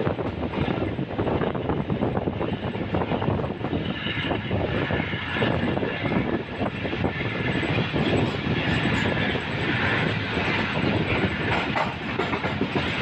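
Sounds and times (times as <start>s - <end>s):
train wheels rattling on rails: 0.0s - 13.0s.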